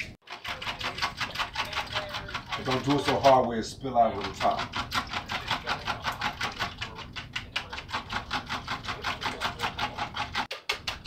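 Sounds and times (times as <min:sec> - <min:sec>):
whisk clicking against bowl: 0:00.0 - 0:11.0.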